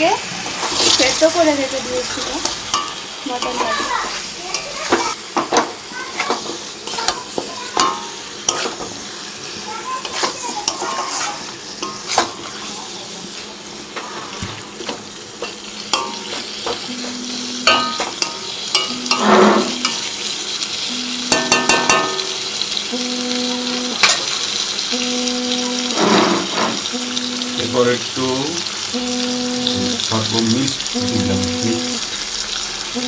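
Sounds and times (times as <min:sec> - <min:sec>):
food sizzling in a metal pan: 0:00.0 - 0:33.0
metal spatula scraping a pan: 0:10.0 - 0:12.6, 0:18.8 - 0:20.1
short steady tone: 0:16.9 - 0:18.0, 0:18.8 - 0:20.0, 0:20.9 - 0:22.2, 0:22.9 - 0:24.0, 0:24.9 - 0:28.0, 0:28.9 - 0:32.0.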